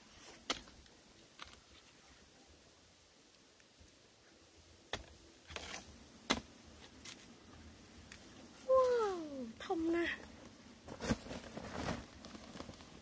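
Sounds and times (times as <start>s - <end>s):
stick knocking and scraping soil: 0.2s - 1.8s, 4.9s - 7.3s.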